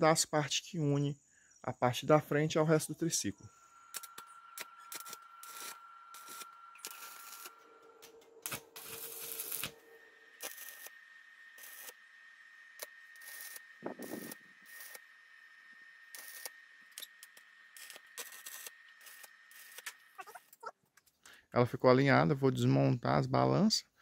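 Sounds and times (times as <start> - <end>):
crackling welding arc bursts: 3.9 - 12.0, 12.7 - 15.2, 16.0 - 20.0.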